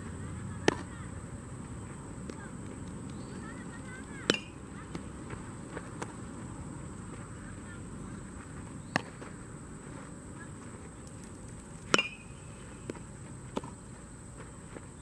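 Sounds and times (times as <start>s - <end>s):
baseball hit and caught: 0.6s - 0.9s, 4.1s - 6.2s, 8.8s - 9.4s, 11.8s - 13.8s.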